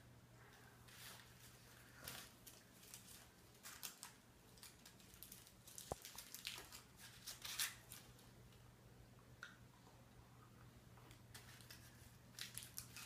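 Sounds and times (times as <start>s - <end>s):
low room hum: 0.0s - 13.0s
candy wrappers crinkling: 0.9s - 8.6s, 11.3s - 13.0s.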